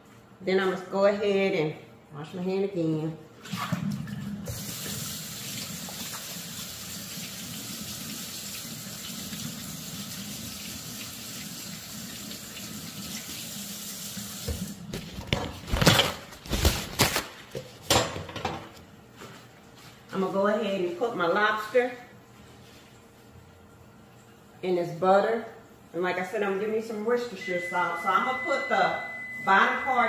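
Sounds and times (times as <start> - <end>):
faucet running water: 3.7 - 14.9.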